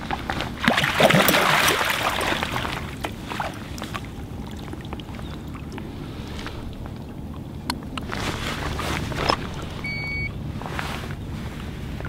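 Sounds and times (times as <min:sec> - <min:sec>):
water dripping: 0:00.0 - 0:08.2
water splashing: 0:00.0 - 0:12.0.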